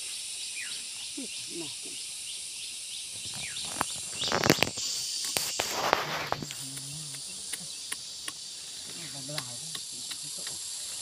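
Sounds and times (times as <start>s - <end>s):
insect chirring: 0.0s - 11.0s
leaves rustling and stems snapping: 3.2s - 10.6s.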